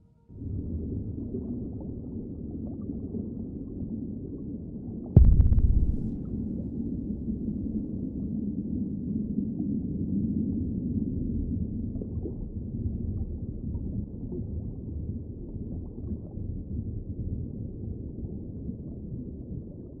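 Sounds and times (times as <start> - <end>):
low steady rumble: 5.2 - 9.7.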